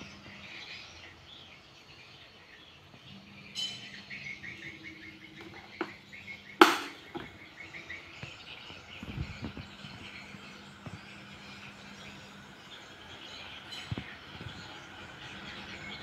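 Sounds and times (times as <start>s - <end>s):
low steady fan hum: 0.0s - 16.0s
small birds chirping: 0.0s - 16.0s
fan switch click: 6.6s - 7.3s.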